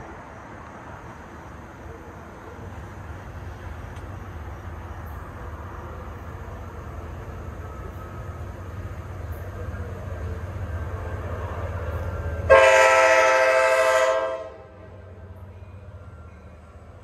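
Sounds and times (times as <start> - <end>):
train rumbling: 0.0 - 17.0
train horn blast: 12.4 - 14.9.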